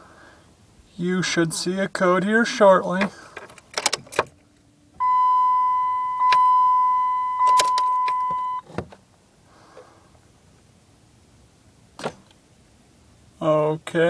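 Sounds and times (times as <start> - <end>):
dashboard chime beep: 5.0 - 8.6
thump: 12.0 - 12.3.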